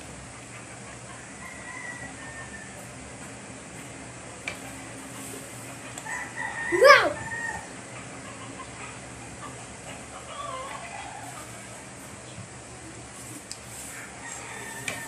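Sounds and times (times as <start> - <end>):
rooster crowing: 1.1 - 2.9, 6.0 - 7.8, 13.8 - 15.0.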